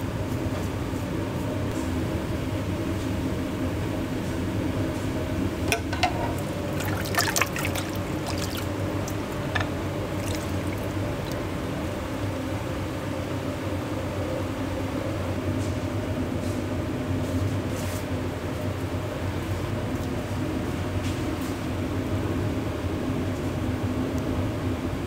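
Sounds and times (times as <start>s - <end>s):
steady mechanical hum: 0.0s - 25.0s
liquid being poured: 6.2s - 11.4s.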